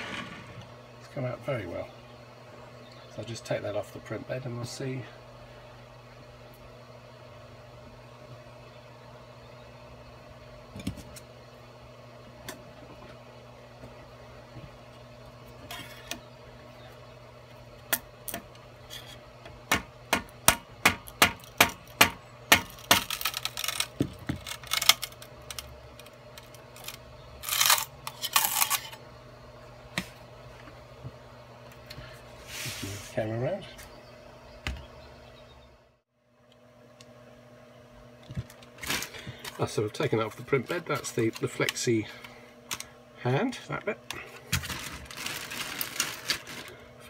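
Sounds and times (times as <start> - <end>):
printer fans humming: 0.0 - 35.9, 37.0 - 47.0
short scraping rustles: 32.3 - 33.2.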